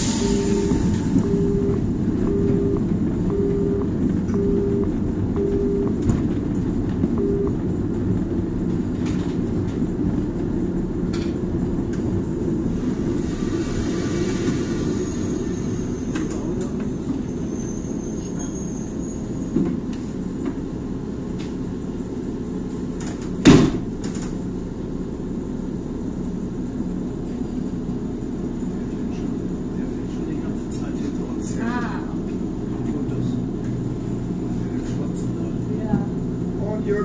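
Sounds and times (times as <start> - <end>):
train wheels rumbling: 0.0 - 37.0.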